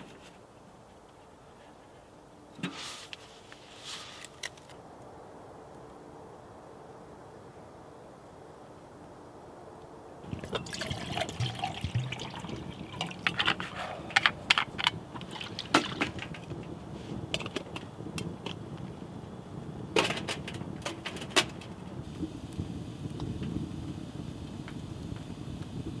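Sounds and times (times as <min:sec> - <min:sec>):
steady rain hiss: 0:00.0 - 0:26.0
raindrops tapping on tent fabric: 0:10.3 - 0:19.0.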